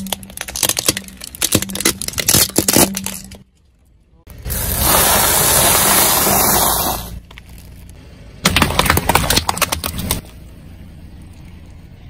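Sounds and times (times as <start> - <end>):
water balloons popping: 8.4 - 10.2.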